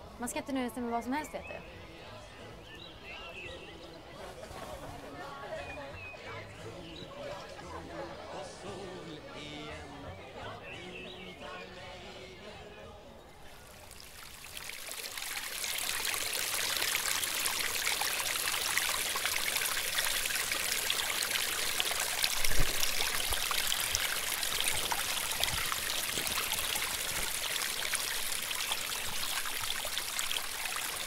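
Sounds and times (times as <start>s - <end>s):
brook trickling over rocks: 13.5s - 31.0s.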